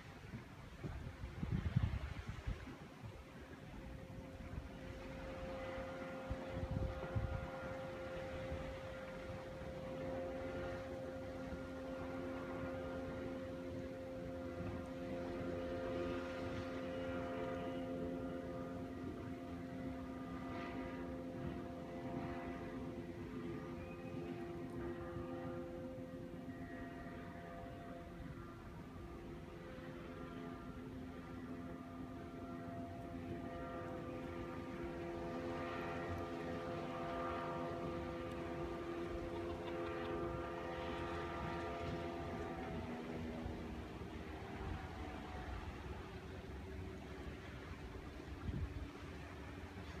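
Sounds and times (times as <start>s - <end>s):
steady mechanical hum: 0.0s - 50.0s
wind buffeting microphone: 0.1s - 11.8s, 48.3s - 49.0s.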